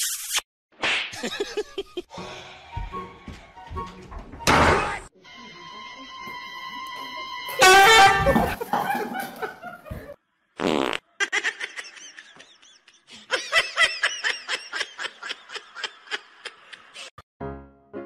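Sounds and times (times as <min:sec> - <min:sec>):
person laughing: 0:01.2 - 0:02.1, 0:08.2 - 0:10.2, 0:11.2 - 0:17.1.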